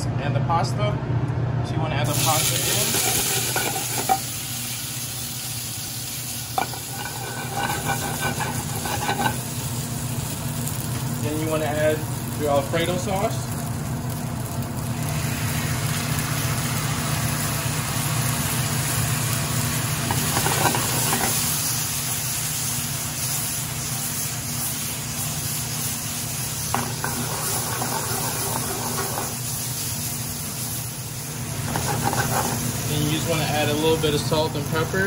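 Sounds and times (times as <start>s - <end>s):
steady low hum: 0.0s - 35.0s
sauce sizzling in hot pan: 2.1s - 35.0s.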